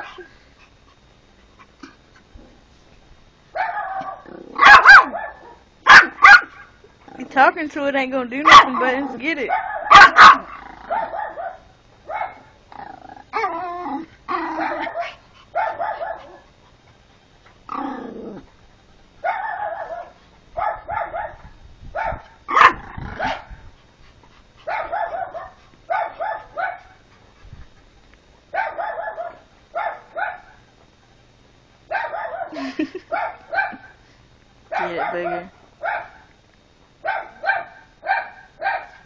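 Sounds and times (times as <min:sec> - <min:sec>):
small dog yapping: 0:03.6 - 0:06.7, 0:08.4 - 0:12.4, 0:13.3 - 0:16.4, 0:22.0 - 0:23.5
dog growling: 0:04.1 - 0:04.7, 0:10.3 - 0:11.1, 0:12.7 - 0:15.0, 0:17.6 - 0:18.6, 0:22.6 - 0:23.6.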